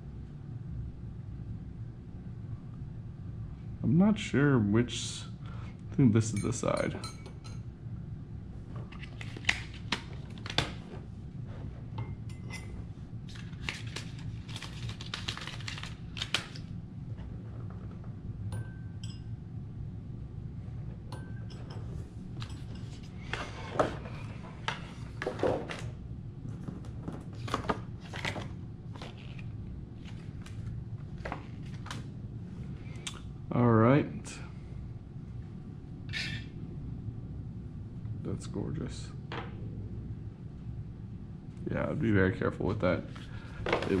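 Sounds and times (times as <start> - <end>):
low hum: 0.0 - 44.0
glassware clinking: 6.3 - 7.6, 18.5 - 19.3, 21.1 - 22.9.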